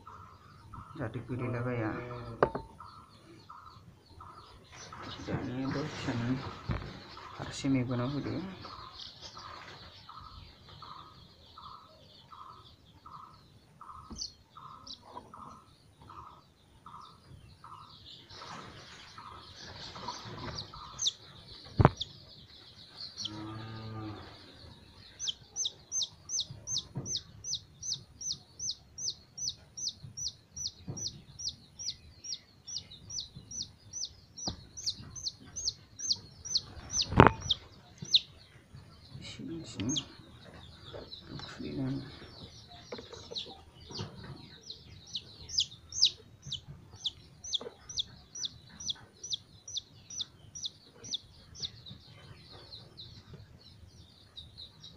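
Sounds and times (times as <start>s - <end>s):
chick peeping loudly: 0.0s - 23.5s, 24.1s - 54.9s
sharp knock: 2.4s - 2.8s.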